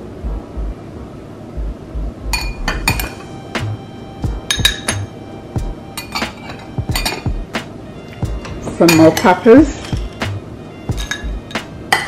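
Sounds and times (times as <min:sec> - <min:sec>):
metal spoon clinking on glass: 0:04.5 - 0:05.1, 0:06.0 - 0:07.3, 0:08.8 - 0:10.0, 0:11.0 - 0:12.0.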